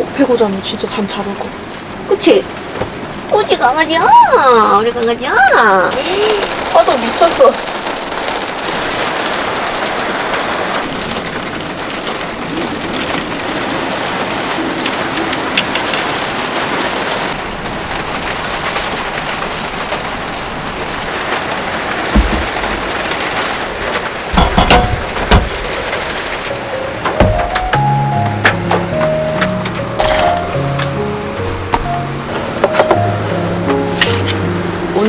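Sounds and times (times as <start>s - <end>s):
heavy rain on car roof: 0.0s - 35.0s
dull thumps: 22.1s - 23.0s, 27.1s - 30.4s.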